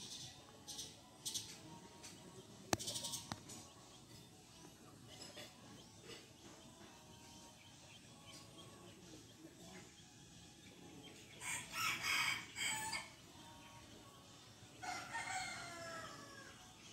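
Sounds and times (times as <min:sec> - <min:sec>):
rooster crowing: 0:11.4 - 0:13.1, 0:14.8 - 0:16.5.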